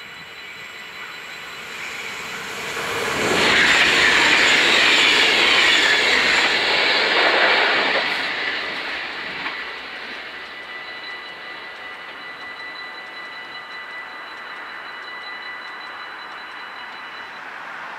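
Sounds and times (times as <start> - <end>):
electric train passing: 0.0 - 17.9
level crossing warning bells: 0.0 - 17.9.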